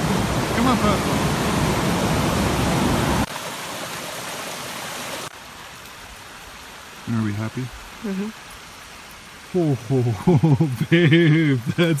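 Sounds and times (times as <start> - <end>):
ocean surf breaking: 0.0 - 3.3
small creek trickling: 0.0 - 12.0.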